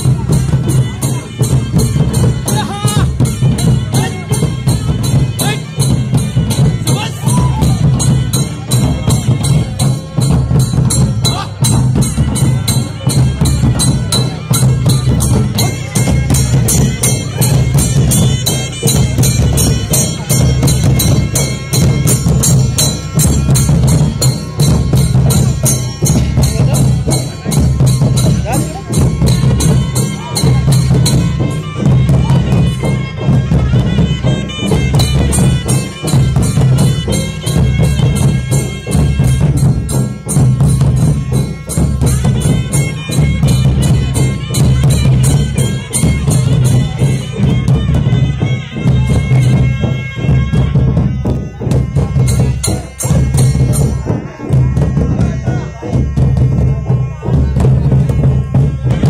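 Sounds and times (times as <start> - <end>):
drums beating fast rhythm: 0.0 - 59.0.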